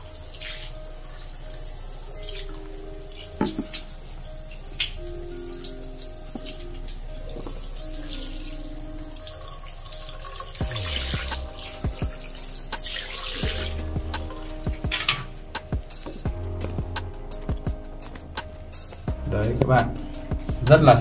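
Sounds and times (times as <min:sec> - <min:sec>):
water splashing into washbasin: 0:00.0 - 0:15.4
background music: 0:00.0 - 0:21.0.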